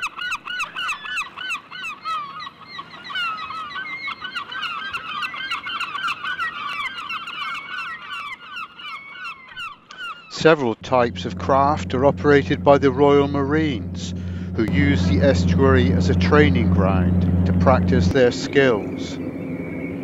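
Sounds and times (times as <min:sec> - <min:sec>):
gulls calling: 0:09.8 - 0:20.0.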